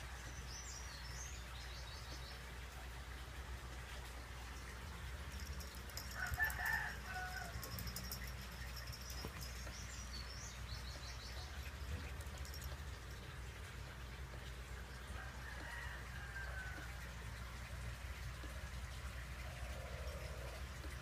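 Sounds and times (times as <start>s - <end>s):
rooster crowing: 6.0s - 7.8s, 15.2s - 16.9s.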